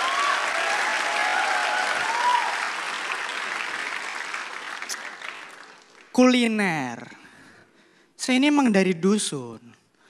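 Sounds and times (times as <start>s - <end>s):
studio audience applauding: 0.0s - 6.4s.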